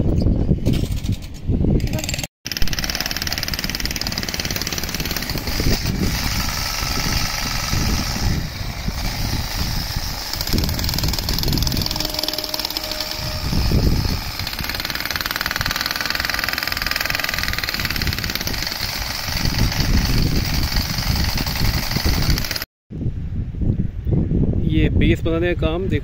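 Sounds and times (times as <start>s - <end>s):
wind rumble on microphone: 0.0s - 2.3s, 5.2s - 12.1s, 13.0s - 14.8s, 17.8s - 26.0s.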